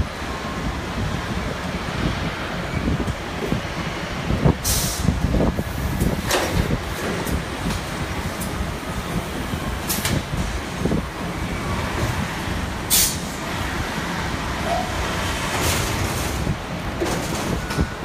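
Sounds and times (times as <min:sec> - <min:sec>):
compressed air hissing: 0:04.6 - 0:06.0, 0:12.9 - 0:13.3.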